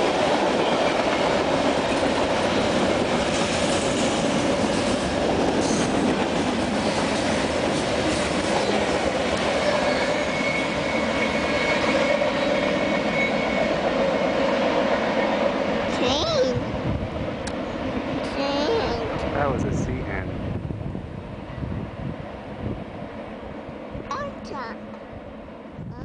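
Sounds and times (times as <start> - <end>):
train wheels rumbling on rails: 0.0 - 26.0
high wheel squeal: 9.6 - 14.3.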